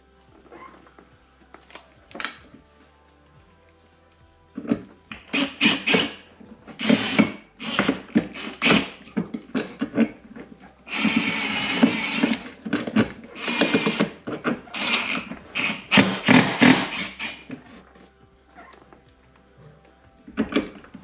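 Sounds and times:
cordless drill driving screws: 0:05.2 - 0:06.2, 0:06.8 - 0:09.0, 0:10.8 - 0:17.6.

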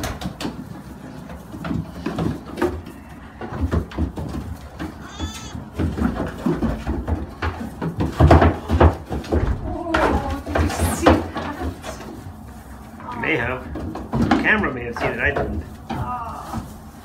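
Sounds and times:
hooves shuffling on straw: 0:00.0 - 0:17.0
knocks against wooden pen: 0:01.5 - 0:12.1
goats bleating: 0:05.0 - 0:05.8.

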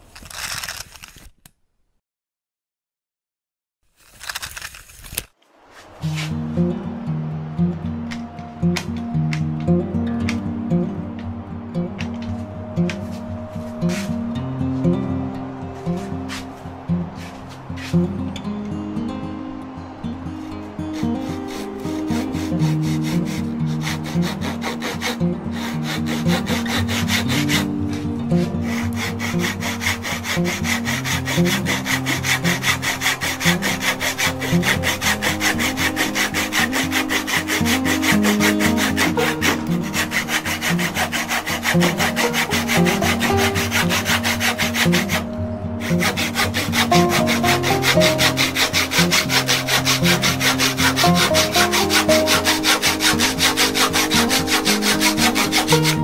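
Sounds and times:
hand saw cutting wood: 0:04.0 - 0:06.6, 0:12.0 - 0:14.2, 0:15.9 - 0:18.2, 0:20.4 - 0:56.0.

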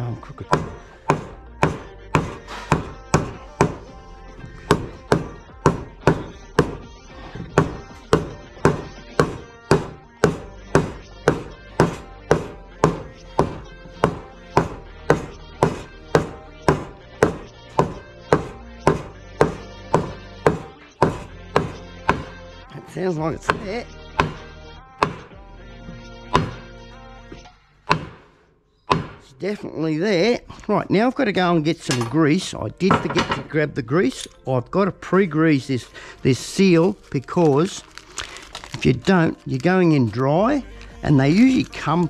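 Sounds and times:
hammer striking metal: 0:00.5 - 0:03.9, 0:07.6 - 0:22.3, 0:23.5 - 0:24.4, 0:25.0 - 0:25.4, 0:26.3 - 0:26.6, 0:27.8 - 0:29.3, 0:31.8 - 0:32.2, 0:32.9 - 0:33.5.

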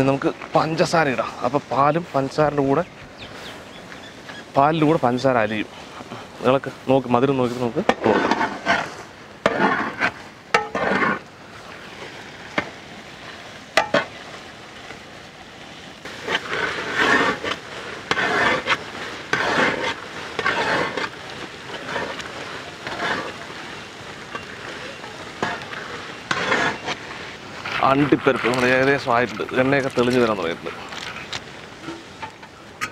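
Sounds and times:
ladle scraping and swishing in pot: 0:07.5 - 0:12.7, 0:16.1 - 0:32.9.

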